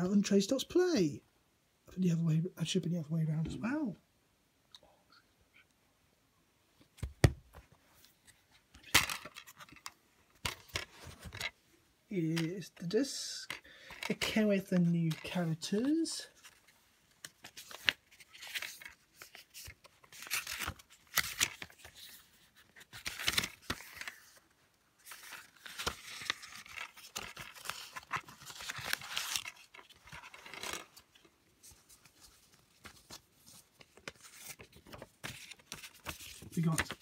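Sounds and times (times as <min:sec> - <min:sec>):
paper booklet rustling: 0:12.4 - 0:37.0.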